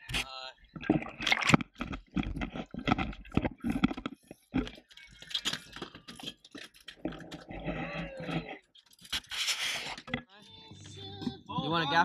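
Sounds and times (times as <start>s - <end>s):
water splashing: 0.1s - 10.2s
camera knocks and rubbing: 0.8s - 9.3s.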